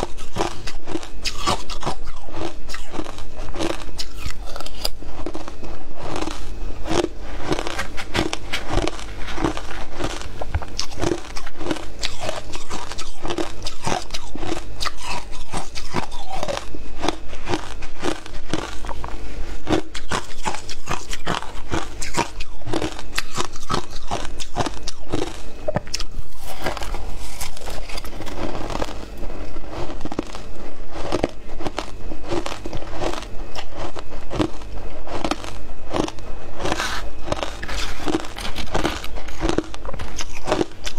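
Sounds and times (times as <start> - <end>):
ice being chewed: 0.0 - 40.9.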